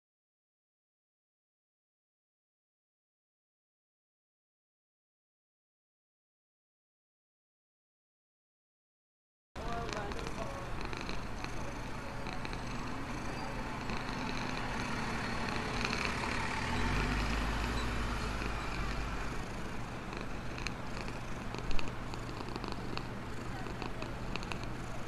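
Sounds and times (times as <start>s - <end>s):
cat purring: 9.6s - 25.0s.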